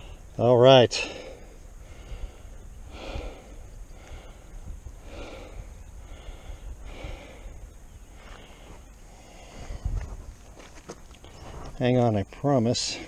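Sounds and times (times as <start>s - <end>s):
steady low rumble: 0.0s - 10.8s
person breathing close to microphone: 1.0s - 10.2s.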